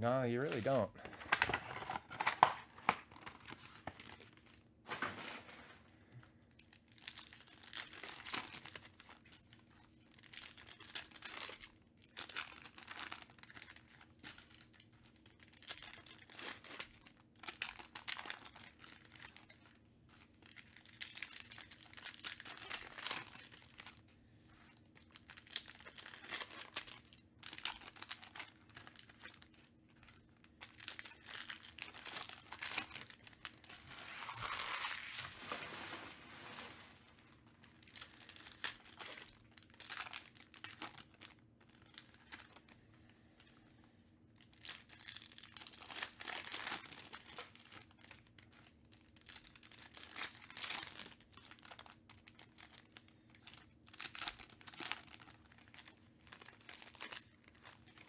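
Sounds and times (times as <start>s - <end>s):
plastic card sleeves handled: 0.4s - 5.7s
foil wrappers tearing and crinkling: 0.4s - 5.9s, 6.6s - 42.8s, 44.4s - 58.0s.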